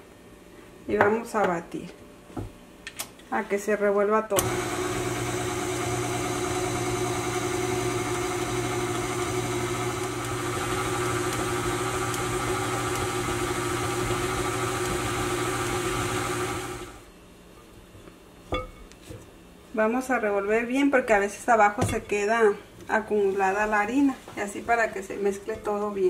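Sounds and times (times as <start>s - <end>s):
beater turning stiff dough in glass bowl: 4.4s - 17.0s
stand mixer motor running: 4.4s - 17.0s.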